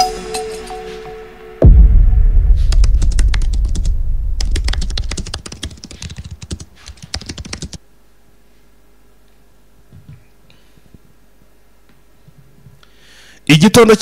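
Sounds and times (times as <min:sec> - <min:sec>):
low rumble of deep boom: 0:01.6 - 0:05.3
rapid keyboard typing: 0:02.6 - 0:07.8.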